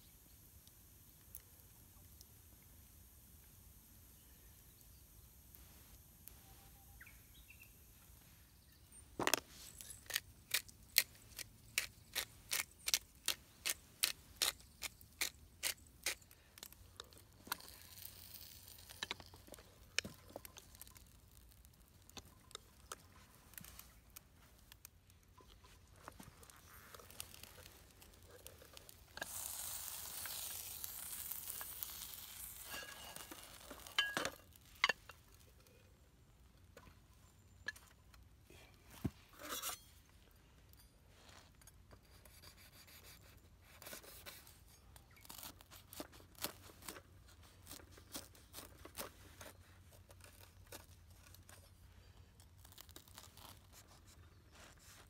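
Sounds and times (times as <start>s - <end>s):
sandwich sizzling: 17.3s - 23.6s, 26.3s - 34.2s.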